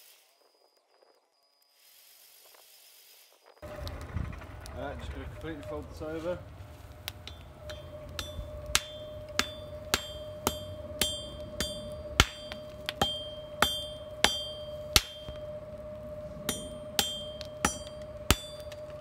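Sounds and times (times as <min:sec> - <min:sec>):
hammer striking steel on anvil: 0:07.0 - 0:19.0.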